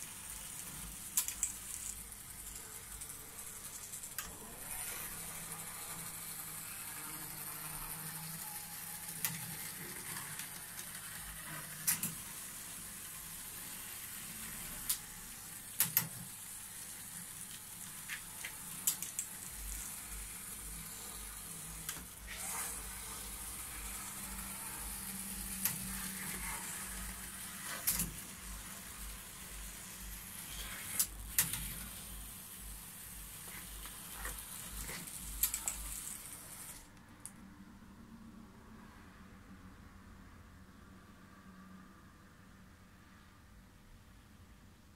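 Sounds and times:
model train hiss and hum: 0:00.0 - 0:36.9.

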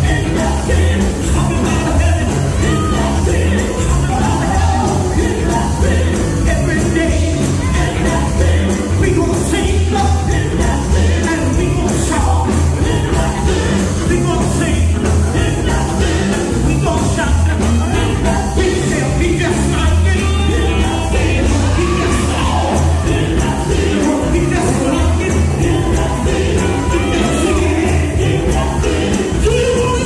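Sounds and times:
electric guitar band: 0:00.0 - 0:30.0
women's group singing gospel: 0:00.0 - 0:30.0.

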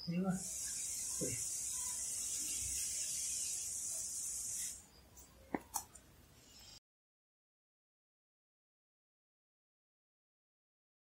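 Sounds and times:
laptop high hiss: 0:00.0 - 0:05.3.

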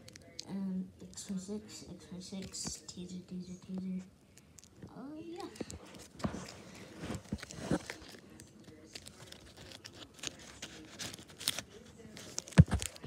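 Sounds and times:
wrapped packet crinkling: 0:05.4 - 0:13.0.

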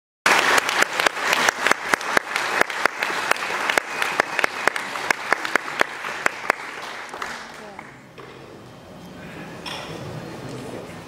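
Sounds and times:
audience applauding: 0:00.3 - 0:08.0.

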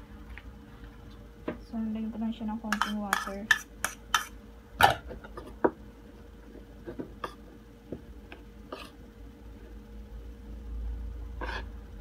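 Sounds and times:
spoon scraping ceramic bowl: 0:02.7 - 0:04.3.

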